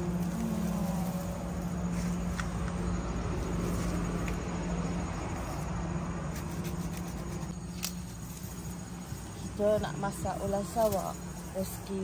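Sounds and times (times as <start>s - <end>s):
low motor hum: 0.0s - 11.6s.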